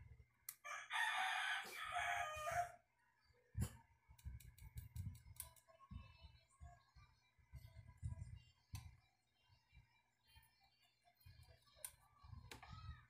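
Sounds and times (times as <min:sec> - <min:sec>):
rooster crowing: 0:00.6 - 0:02.8.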